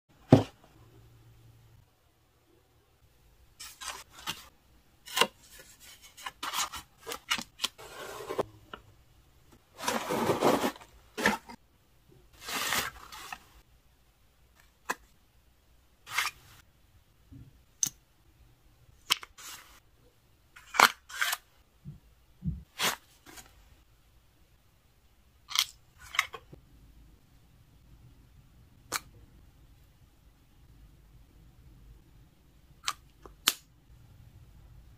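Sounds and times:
paper and card rustling: 3.6s - 4.5s, 5.1s - 8.5s, 9.8s - 11.6s, 12.4s - 13.6s.

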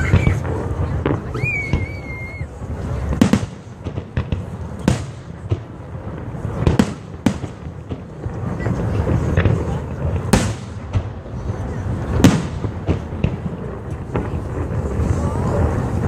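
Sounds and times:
high firework whistle: 0.0s - 0.6s, 1.2s - 2.6s
faint fireworks pops: 0.0s - 16.0s
fireworks bangs: 0.0s - 16.0s.

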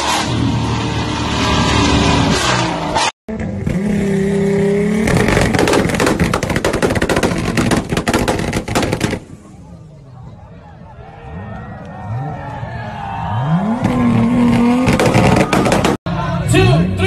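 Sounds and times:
exhaust bangs and pops: 4.8s - 9.6s, 13.8s - 16.0s
car engine revving high: 13.3s - 16.0s.

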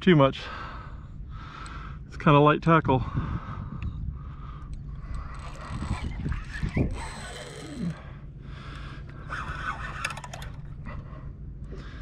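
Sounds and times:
wind rumbling on microphone: 0.6s - 12.0s
quick clicks: 9.9s - 10.6s.

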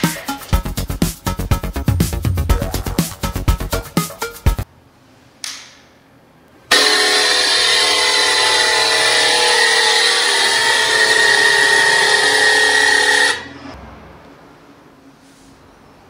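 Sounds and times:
electric air pump whining: 6.7s - 13.5s.

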